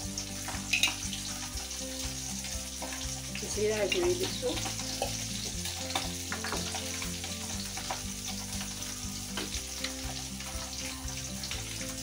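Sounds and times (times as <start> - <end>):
spices sizzling in hot oil: 0.0 - 12.0
steel spoon clicking against pan: 0.5 - 1.1.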